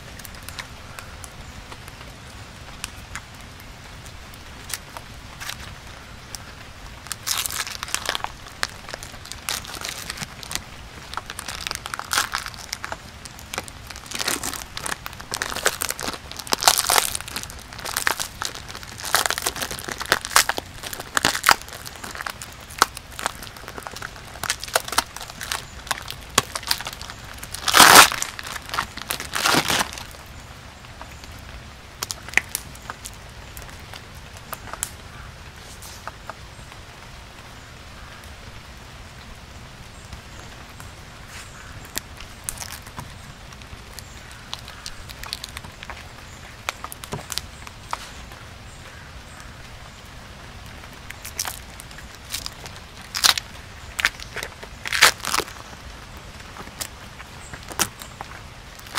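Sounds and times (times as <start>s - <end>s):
plastic film crackles: 4.3s - 30.4s, 32.0s - 35.0s, 41.5s - 49.0s, 50.6s - 58.9s
plastic bag crinkling and rustling: 7.0s - 30.3s, 41.4s - 48.3s, 51.0s - 58.9s.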